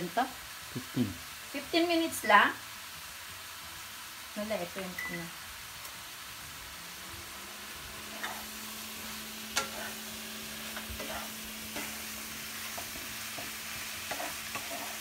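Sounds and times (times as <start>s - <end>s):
food sizzling in a frying pan: 0.0s - 15.0s
spatula scraping a pan: 8.1s - 15.0s.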